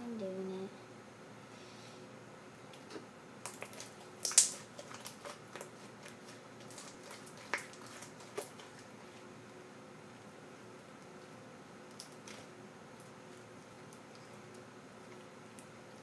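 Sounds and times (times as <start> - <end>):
slime squelching and clicking: 2.7 - 8.9, 11.8 - 13.2.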